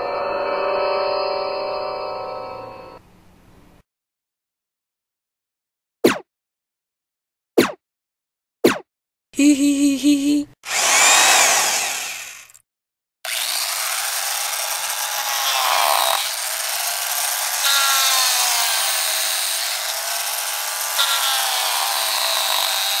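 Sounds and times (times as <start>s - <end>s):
harsh buzzing drone: 10.7s - 12.6s.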